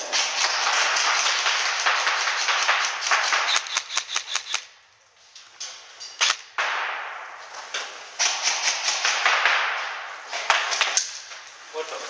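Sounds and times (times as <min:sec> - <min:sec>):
airsoft guns firing: 0:00.0 - 0:04.8, 0:06.2 - 0:07.4, 0:08.2 - 0:11.3
steady hiss: 0:00.0 - 0:12.0.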